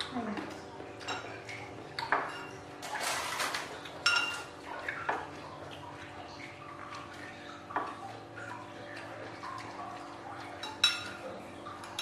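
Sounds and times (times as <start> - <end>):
tableware clinking: 2.1 - 4.5, 10.6 - 11.2.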